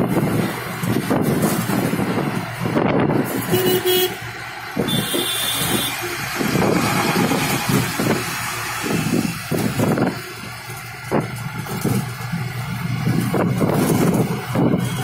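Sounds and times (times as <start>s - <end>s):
engine and road noise: 0.0s - 15.0s
car horn toots: 3.5s - 6.2s, 14.7s - 15.0s.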